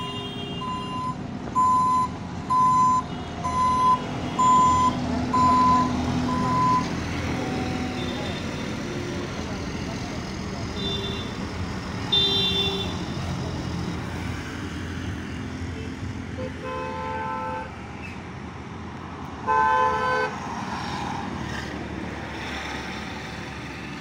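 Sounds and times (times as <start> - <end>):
diesel engine running: 0.6 - 14.0.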